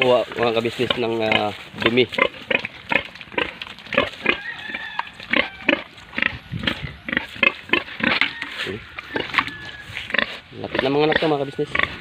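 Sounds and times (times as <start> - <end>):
pig grunting: 0.0 - 12.0.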